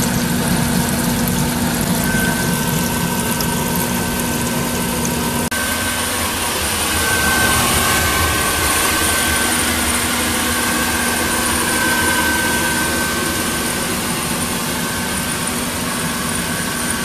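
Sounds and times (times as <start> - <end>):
vigorous water bubbling: 0.0 - 5.5
blower whirring with high whine: 0.0 - 17.0
motor hum: 0.0 - 17.0.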